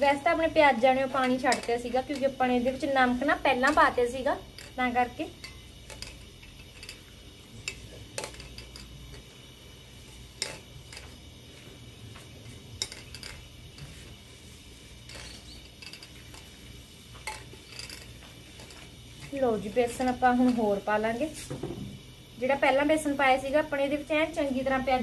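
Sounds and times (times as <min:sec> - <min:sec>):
metal clinks: 0:01.1 - 0:02.8, 0:03.5 - 0:09.3, 0:15.0 - 0:16.5, 0:17.2 - 0:20.7.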